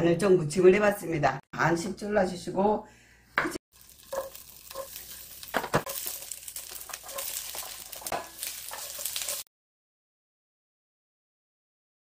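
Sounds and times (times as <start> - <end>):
food sizzling in pan: 3.7 - 9.5
vegetables clattering into pan: 3.8 - 9.5.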